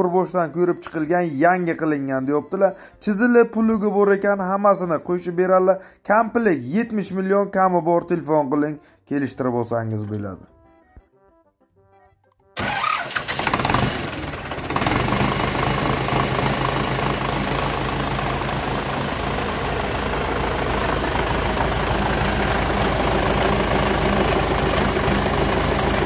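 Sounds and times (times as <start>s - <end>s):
tractor diesel engine idling: 12.6s - 26.0s.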